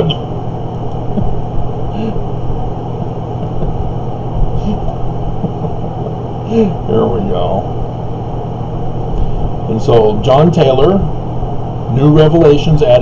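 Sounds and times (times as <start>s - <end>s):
mechanical hum with rushing: 0.0s - 13.0s
faint murmurs: 1.0s - 8.7s.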